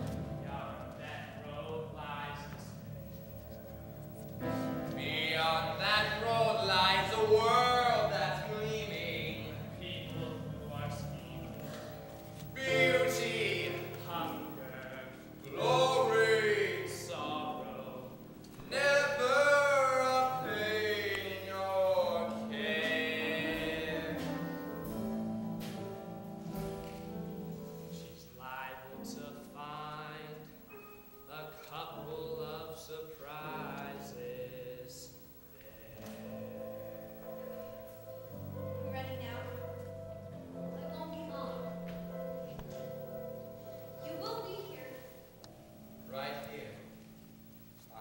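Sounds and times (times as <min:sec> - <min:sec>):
piano: 0:00.0 - 0:48.0
person singing with vibrato: 0:11.6 - 0:26.2.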